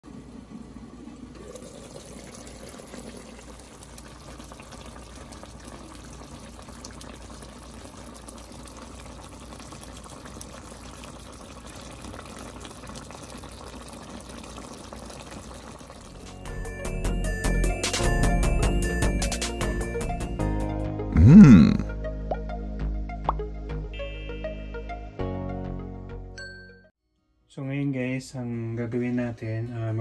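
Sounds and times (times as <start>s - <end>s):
stew bubbling in a pan: 0.1s - 16.4s.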